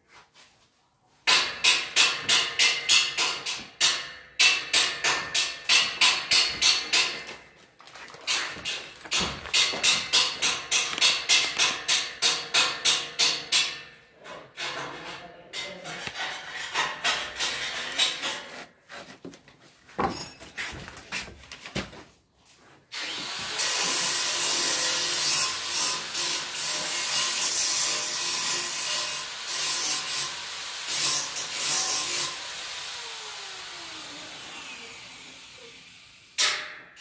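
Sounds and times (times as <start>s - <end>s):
power tool cutting wood: 22.9s - 36.4s.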